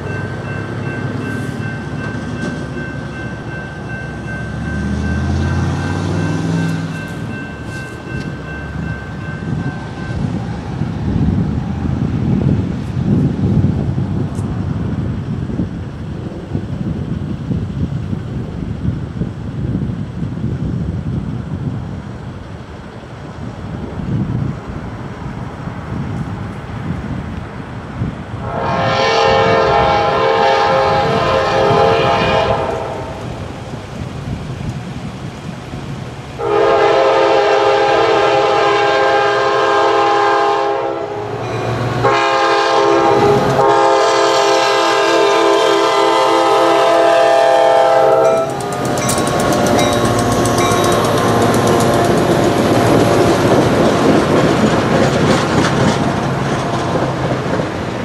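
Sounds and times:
train wheels clattering over rails: 0.0 - 10.4, 48.2 - 58.0
low wind rumble: 0.0 - 58.0
locomotive air horn blasts: 28.4 - 33.2, 36.4 - 52.4.

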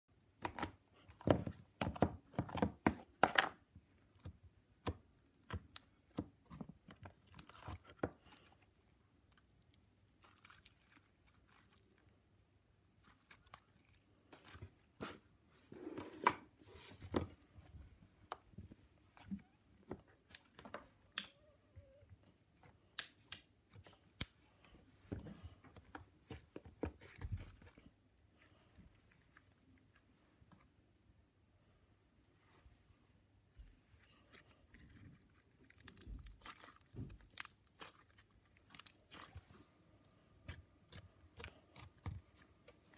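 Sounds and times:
hands squishing slime: 4.0 - 15.2, 34.0 - 42.9.

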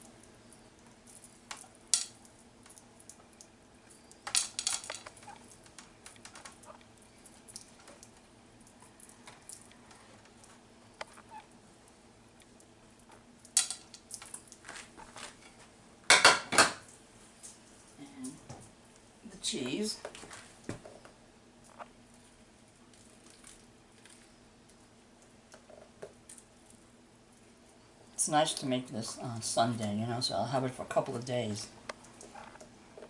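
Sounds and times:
faint steady hum: 0.0 - 33.0
kitchenware clinking: 16.1 - 16.9.

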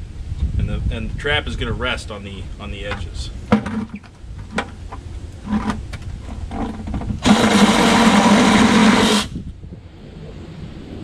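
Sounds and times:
light knocks of blade and bucket: 2.9 - 7.2
reciprocating saw cutting plastic: 5.4 - 9.3.

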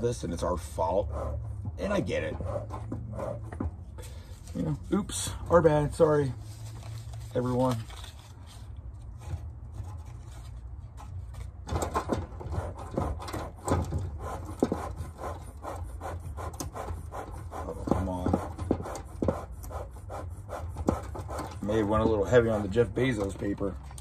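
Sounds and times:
bellows rasping puffs: 0.8 - 4.8, 12.4 - 22.2.

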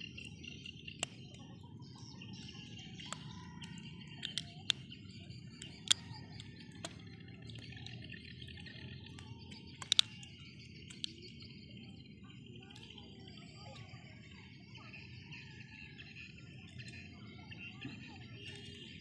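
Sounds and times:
birds chirping: 0.0 - 19.0
insects chirping: 0.0 - 19.0
small click: 9.1 - 10.2.

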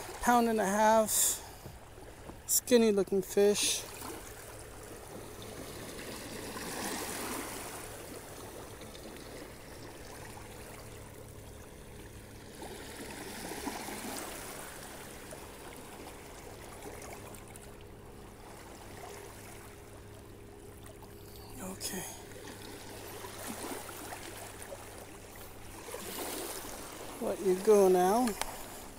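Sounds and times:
small waves lapping on shore: 0.0 - 28.9.

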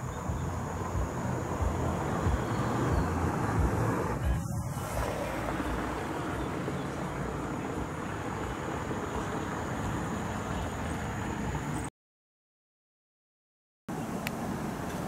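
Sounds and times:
low outdoor rumble: 0.0 - 11.8.

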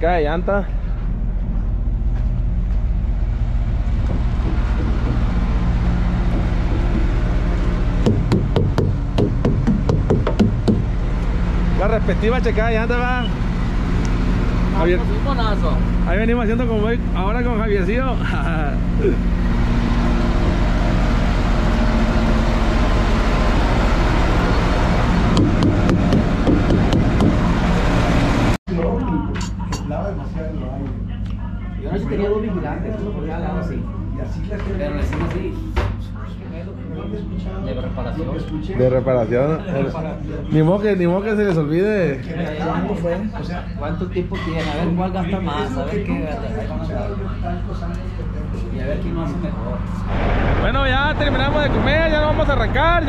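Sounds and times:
diesel truck engine running: 0.0 - 28.6, 46.4 - 53.0.

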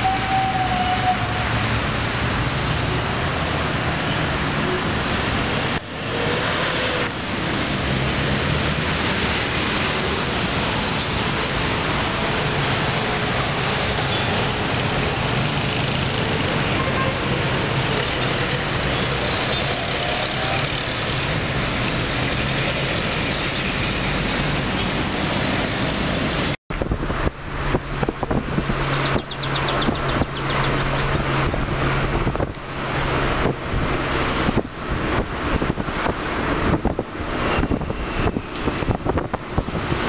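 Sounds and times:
street traffic noise: 0.0 - 40.0
car engine hum: 26.7 - 40.0
wind on microphone: 26.7 - 40.0.

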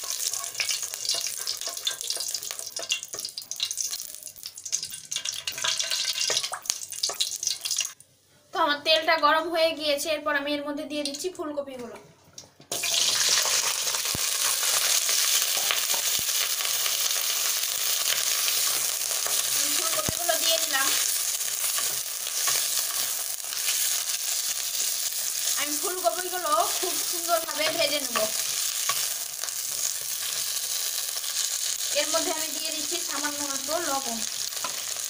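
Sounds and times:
spatula stirring in pan: 0.0 - 4.0, 14.4 - 31.8
vegetables sizzling in hot oil: 0.0 - 8.0, 12.7 - 35.0.

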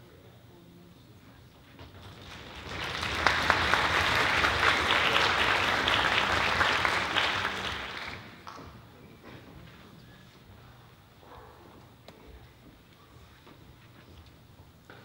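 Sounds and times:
audience applauding: 2.0 - 8.6.

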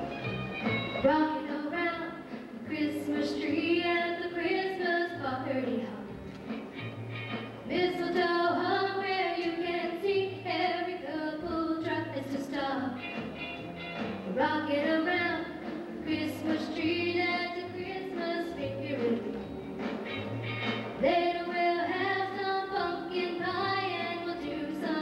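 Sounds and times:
woman singing into microphone: 1.0 - 6.1, 7.7 - 13.0, 14.4 - 19.3, 21.0 - 25.0.

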